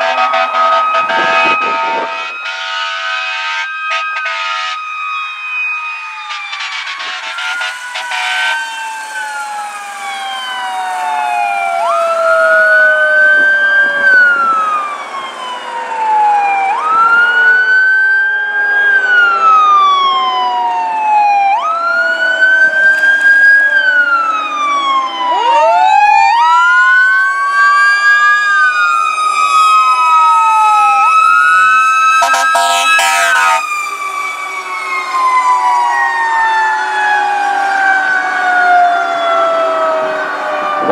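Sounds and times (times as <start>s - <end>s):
second siren tone: 0.0s - 2.8s, 3.6s - 14.8s, 29.4s - 37.6s, 40.1s - 40.9s
fire engine siren wailing: 0.0s - 40.9s
siren winding up: 6.0s - 14.8s, 30.3s - 37.1s
short horn blasts: 6.6s - 8.8s, 32.2s - 33.6s.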